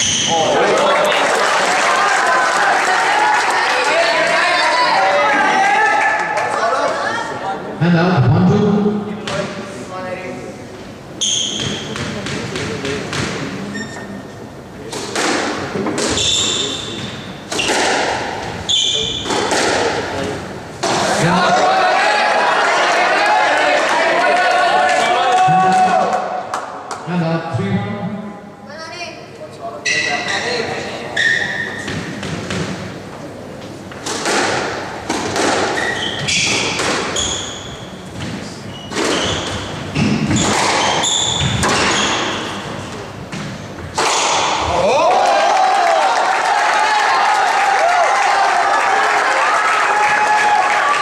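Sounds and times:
shoes squeaking on wooden floor: 29.8s - 32.2s, 35.7s - 43.0s
squash ball smacks: 34.0s - 35.8s, 43.3s - 44.6s.

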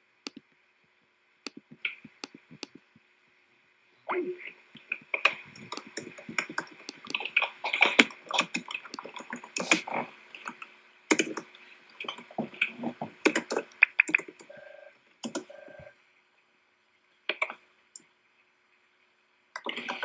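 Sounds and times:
computer keyboard typing: 4.8s - 15.8s.

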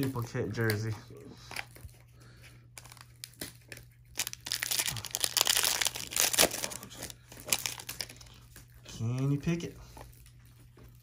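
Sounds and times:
plastic wrapper crinkling and tearing: 2.7s - 11.0s.

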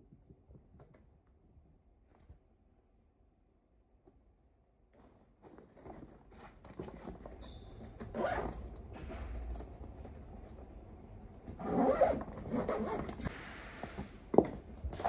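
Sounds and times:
zipper rasping: 5.8s - 8.8s, 11.5s - 13.3s.

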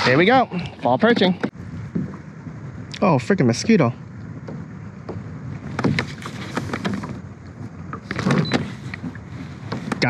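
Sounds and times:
wind and water rushing: 0.0s - 10.0s
light clicks and knocks: 7.8s - 10.0s.

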